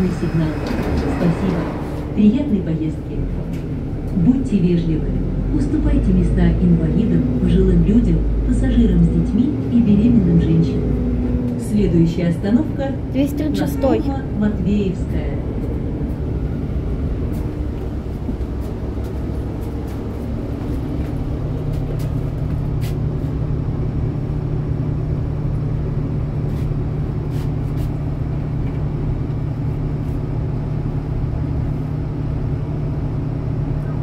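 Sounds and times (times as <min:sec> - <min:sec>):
bus engine and road rumble: 0:00.0 - 0:34.0.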